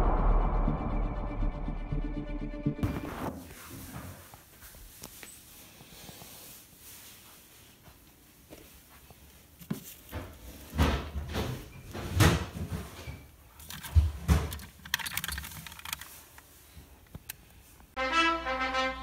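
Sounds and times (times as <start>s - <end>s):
hand rummaging through plastic toys: 13.5s - 17.4s
quick clicking rattles: 13.6s - 16.2s.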